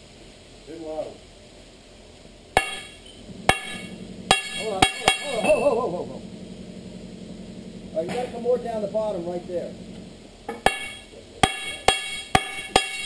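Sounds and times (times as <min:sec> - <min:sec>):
sledgehammer striking steel: 0:02.6 - 0:05.4, 0:10.5 - 0:13.0.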